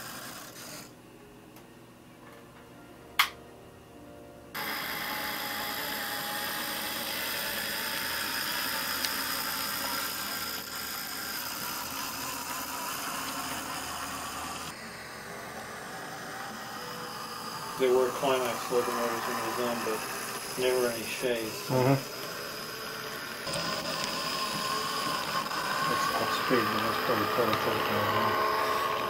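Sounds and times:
model locomotive motor whirring: 0.0 - 1.0, 4.6 - 29.0
sharp click: 3.2 - 3.4.

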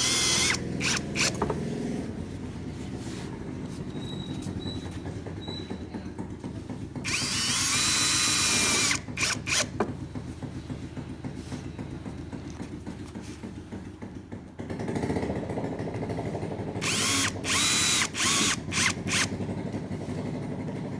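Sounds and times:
drill trigger bursts: 0.0 - 1.4, 7.0 - 9.7, 16.8 - 19.4
cordless drill whining: 0.0 - 1.5, 7.0 - 9.8, 16.8 - 19.4.

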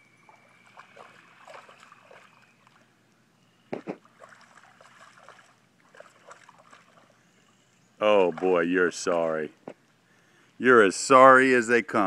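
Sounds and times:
dog splashing through water: 0.3 - 2.9, 3.8 - 7.2, 8.2 - 8.7.

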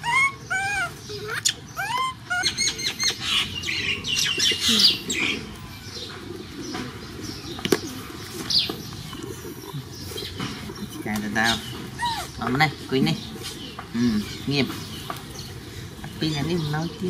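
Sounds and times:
young animal squeaking and whimpering: 0.0 - 5.7, 9.0 - 13.7.

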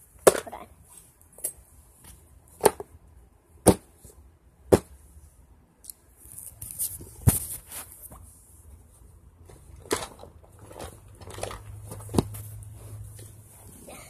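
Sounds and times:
rubbing and rustling: 6.2 - 14.0.

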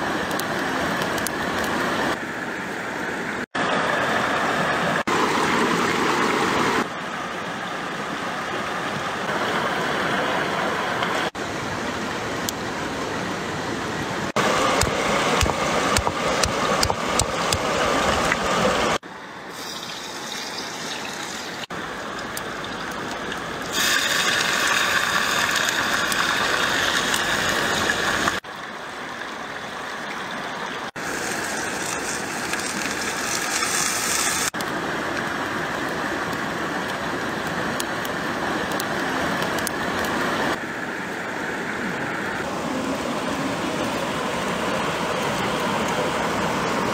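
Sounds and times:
rushing stream: 0.0 - 46.9
water poured into hot wok: 19.5 - 21.7, 23.7 - 28.2.

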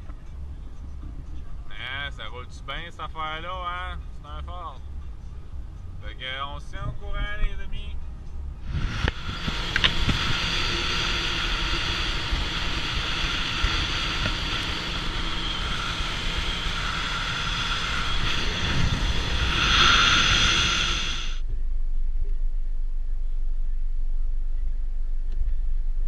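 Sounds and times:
wind rumbling on microphone: 5.4 - 26.0
outboard motor whine: 8.6 - 21.4.

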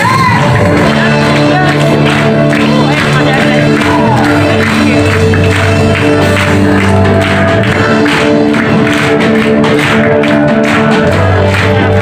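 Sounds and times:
live worship band music: 0.0 - 12.0
steady drum beat: 0.0 - 12.0.

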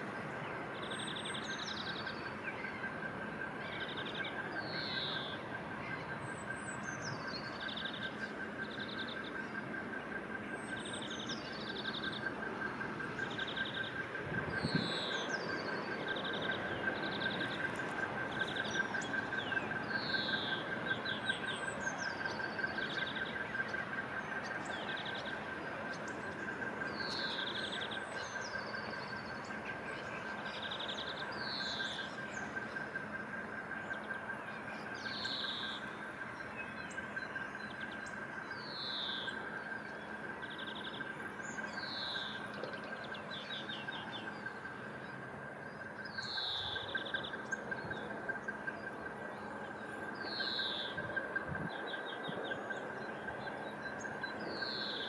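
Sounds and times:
high pulsing whine: 0.0 - 55.0
songbirds singing trills: 0.0 - 55.0.

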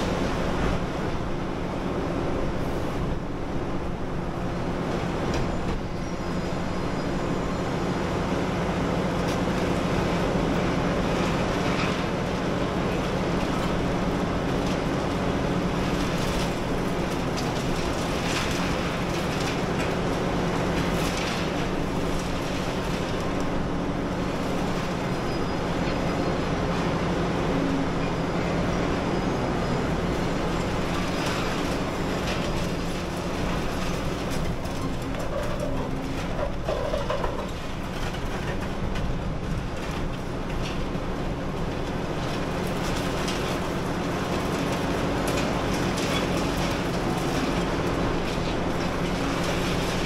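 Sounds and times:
diesel engine running: 0.0 - 50.0
concrete crunching and clattering: 9.2 - 26.1, 30.2 - 50.0.

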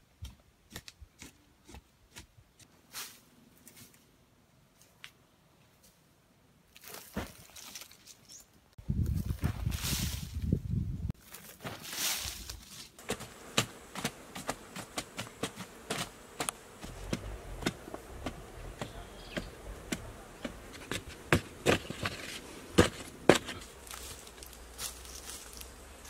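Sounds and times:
digging bar striking hard soil: 13.0 - 23.7.

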